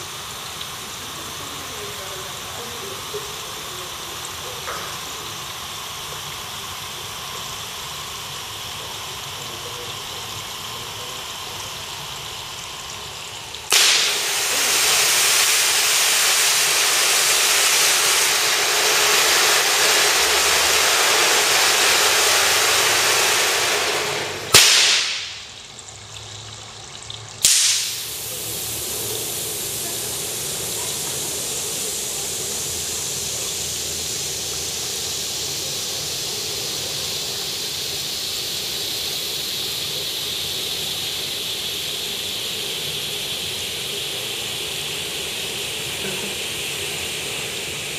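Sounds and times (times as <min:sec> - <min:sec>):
flares burning with a hiss: 0:00.0 - 0:25.5, 0:27.4 - 0:47.9
pyrotechnics hissing: 0:00.0 - 0:25.8, 0:27.4 - 0:47.9
spark fountains hissing: 0:00.0 - 0:25.8, 0:27.4 - 0:47.9
loud bursts: 0:13.6 - 0:25.6, 0:27.4 - 0:47.9.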